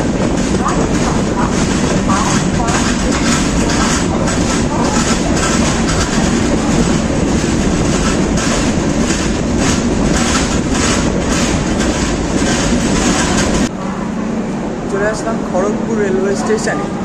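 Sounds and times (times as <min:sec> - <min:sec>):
wheels clattering over rail joints: 0:00.0 - 0:13.7
train wheels rushing: 0:00.0 - 0:17.0.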